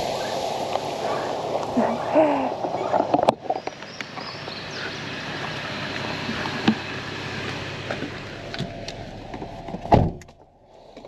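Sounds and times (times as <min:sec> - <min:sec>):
water pouring on campfire: 0:00.0 - 0:04.3
embers hissing: 0:00.0 - 0:11.0.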